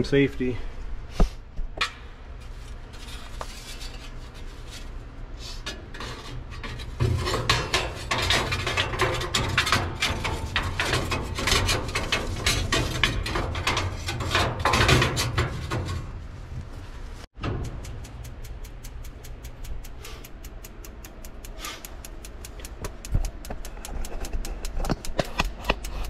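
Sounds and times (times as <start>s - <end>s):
steady low hum: 0.0s - 26.0s
tool scraping sheet metal: 3.0s - 16.2s.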